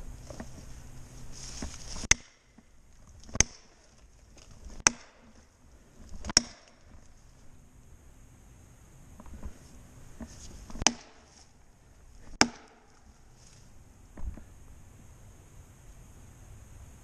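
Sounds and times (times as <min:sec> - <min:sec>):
tool striking wood: 0:02.0 - 0:02.6, 0:03.2 - 0:03.8, 0:04.7 - 0:05.4, 0:06.2 - 0:07.0, 0:10.7 - 0:11.3, 0:12.3 - 0:13.1.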